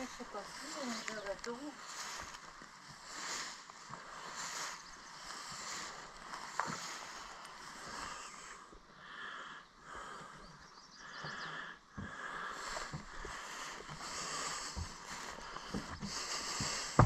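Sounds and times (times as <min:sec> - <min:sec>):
footsteps through tall grass: 0:00.0 - 0:08.7, 0:11.5 - 0:17.0
steady outdoor hiss: 0:00.0 - 0:17.0
faint bird chirps: 0:09.3 - 0:11.9.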